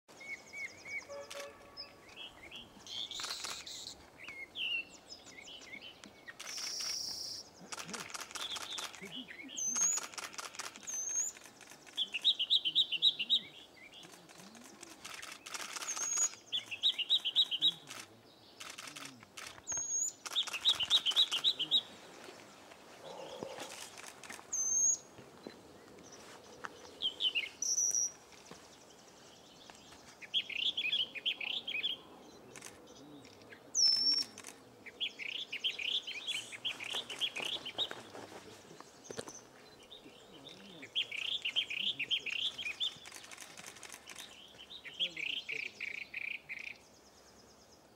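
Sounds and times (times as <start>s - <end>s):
bird singing trills and whistles: 10.8s - 18.0s, 19.7s - 21.9s, 32.6s - 38.0s.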